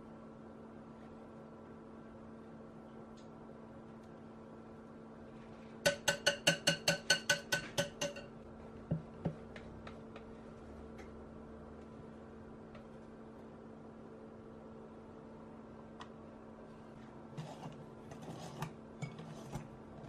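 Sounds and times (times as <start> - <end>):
whisk tapping glass bowl: 5.9 - 8.3.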